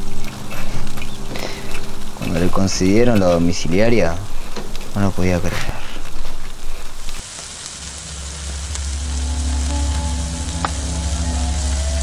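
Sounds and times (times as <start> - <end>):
low music drone: 0.0 - 5.0, 7.7 - 12.0
embers crackling and hissing: 0.0 - 12.0.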